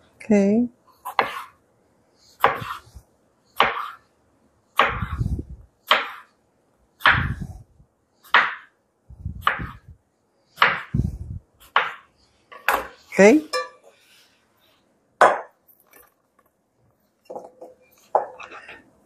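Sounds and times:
knife slicing on cutting board: 1.1 - 1.6, 2.4 - 2.9.

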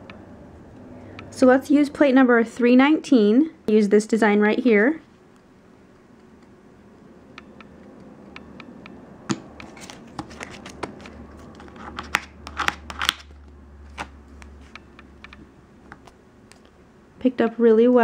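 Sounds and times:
plastic card scraping metal plate: 9.6 - 13.3.

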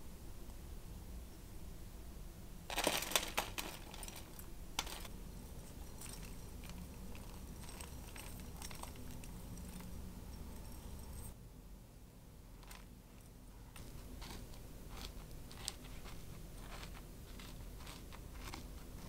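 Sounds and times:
crumbs clicking and rustling: 2.7 - 5.1, 5.7 - 10.0, 12.6 - 19.0.

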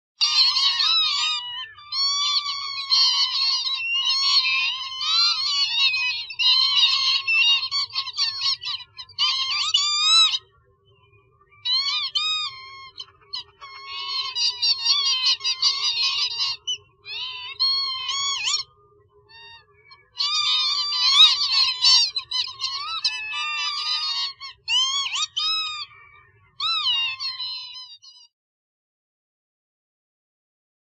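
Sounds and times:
lapwing calling: 0.2 - 28.3.

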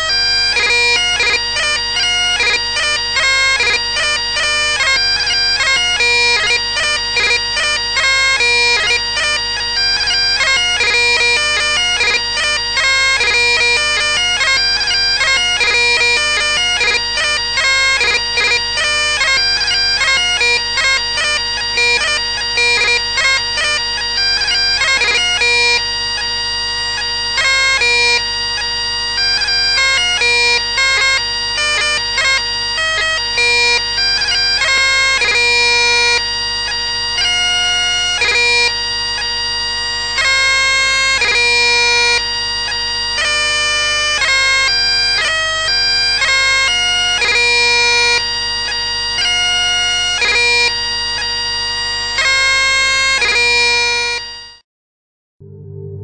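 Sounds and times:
electronic bagpipes dance tune: 0.0 - 54.5.

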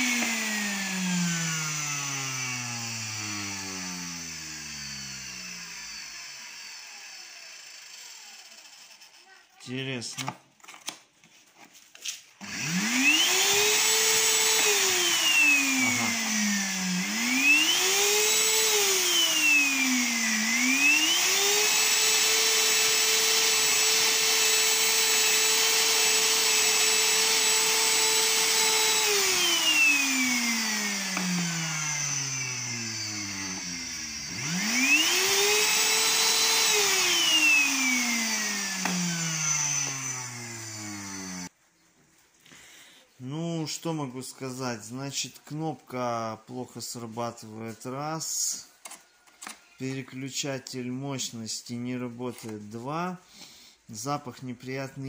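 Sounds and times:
vacuum cleaner motor whine: 0.0 - 9.2, 12.4 - 41.5.

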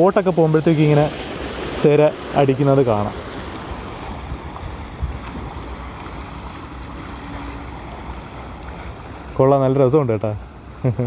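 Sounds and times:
waves splashing against stone: 0.0 - 11.0
wind rumble on microphone: 3.0 - 9.4.

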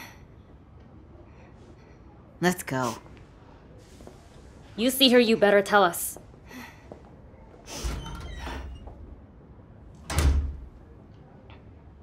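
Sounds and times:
door opening with scraping rattle: 7.7 - 9.1
door shutting with heavy thud: 10.0 - 10.7.

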